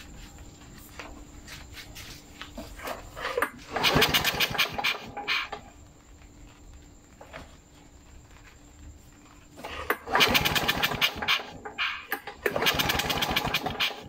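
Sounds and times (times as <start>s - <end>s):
lawn mower engine cranking: 3.3s - 5.6s, 9.6s - 14.0s.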